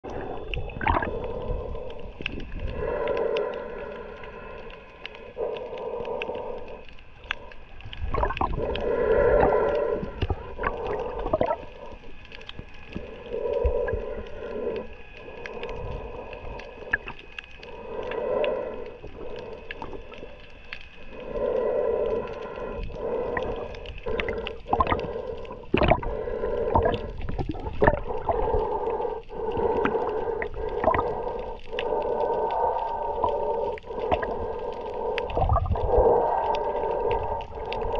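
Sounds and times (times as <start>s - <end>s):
muffled underwater hum: 0.0s - 37.9s.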